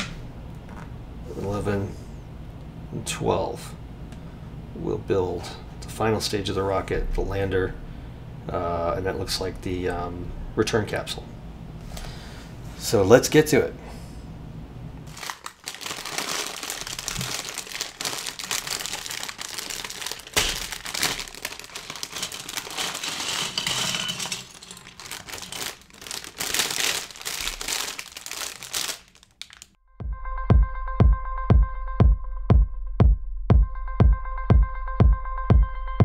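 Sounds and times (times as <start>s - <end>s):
plastic bag crinkling: 15.1s - 29.8s
plastic bricks clattering on wood: 20.3s - 26.4s.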